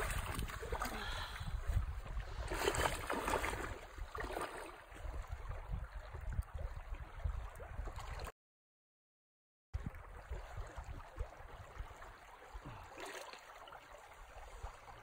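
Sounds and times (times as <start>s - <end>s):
stream running over stones: 0.0s - 7.1s, 9.8s - 15.0s
wind rumbling on microphone: 0.0s - 8.3s, 9.8s - 12.8s.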